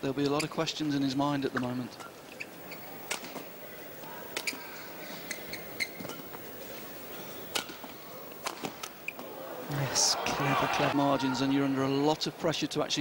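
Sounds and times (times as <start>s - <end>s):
shoe squeaks on court: 4.4s - 6.3s
crowd murmur: 9.0s - 12.0s.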